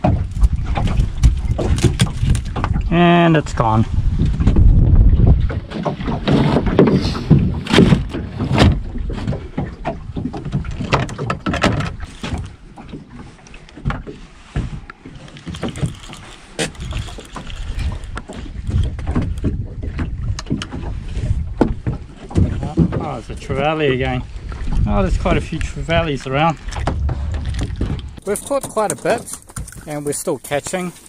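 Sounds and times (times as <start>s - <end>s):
low rumble: 2.7s - 5.7s, 24.2s - 30.0s.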